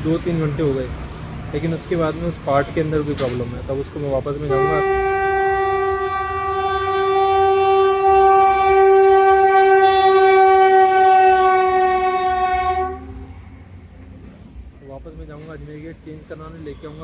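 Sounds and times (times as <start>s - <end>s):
train rumbling past: 3.4s - 16.6s
locomotive horn blast: 4.4s - 13.6s.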